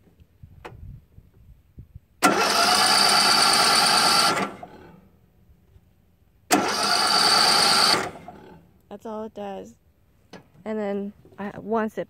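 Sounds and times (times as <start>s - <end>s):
mower engine cranking on starter: 2.2s - 5.1s, 6.5s - 8.7s.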